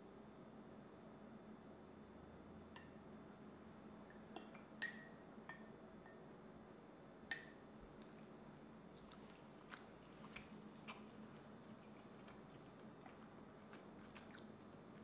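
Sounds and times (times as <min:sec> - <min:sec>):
spoon clinking against glass mug: 0:04.8 - 0:06.2, 0:07.3 - 0:07.7.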